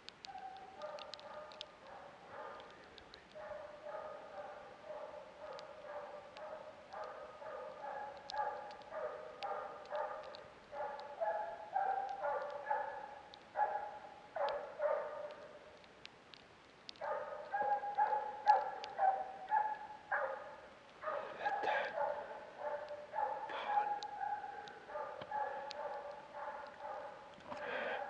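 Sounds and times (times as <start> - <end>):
hound baying: 0.3 - 2.7, 3.4 - 15.4, 17.0 - 28.0.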